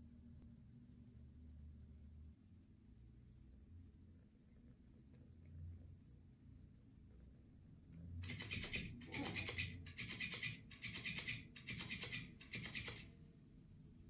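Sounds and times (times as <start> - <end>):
toy motor buzzing bursts: 8.2 - 13.1.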